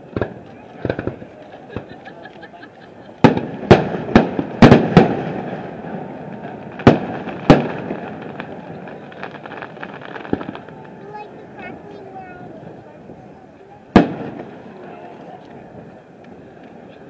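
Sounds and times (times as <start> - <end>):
firework bangs: 0.0 - 13.3, 13.9 - 14.9
faint firework pops: 0.1 - 2.4, 3.2 - 5.7, 6.4 - 11.1, 13.9 - 16.8.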